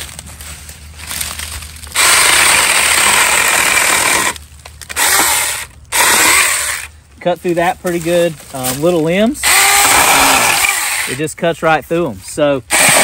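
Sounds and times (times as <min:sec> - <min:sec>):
chainsaw cutting tree limbs: 0:01.0 - 0:06.9, 0:08.6 - 0:11.3, 0:12.6 - 0:13.0.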